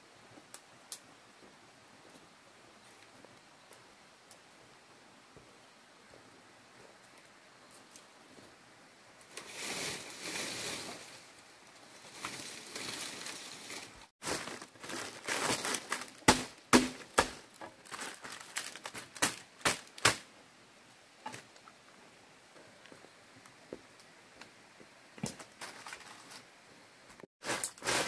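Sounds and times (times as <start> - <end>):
dry leaves rustling: 9.3 - 20.3, 27.4 - 28.0
machete chopping: 16.3 - 17.4.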